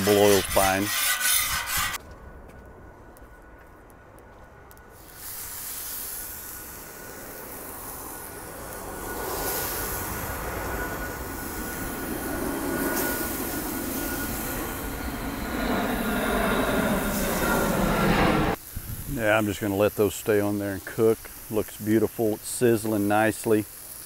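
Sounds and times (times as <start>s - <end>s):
chicken sizzling on griddle: 5.0s - 10.3s, 18.6s - 24.0s.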